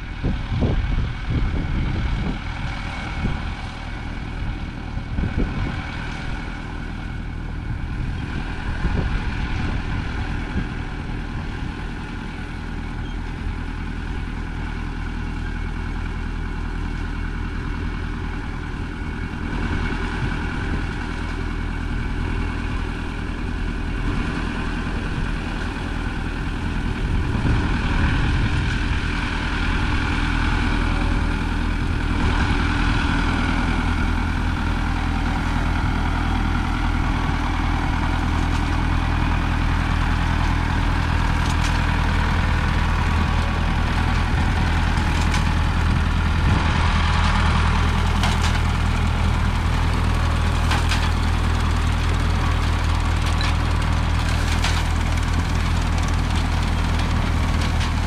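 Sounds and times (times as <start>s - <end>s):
tractor engine running: 0.0s - 58.0s.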